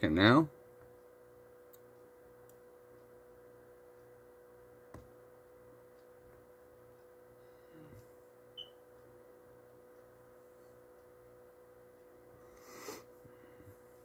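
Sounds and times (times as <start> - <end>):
faint steady hum: 0.0 - 14.0
thin steady tone: 0.0 - 14.0
click: 1.7 - 3.1.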